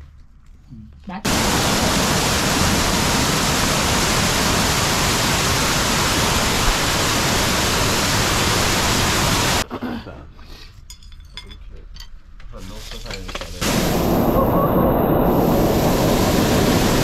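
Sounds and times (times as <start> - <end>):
water cascading and splashing: 1.3 - 9.6, 13.6 - 17.0.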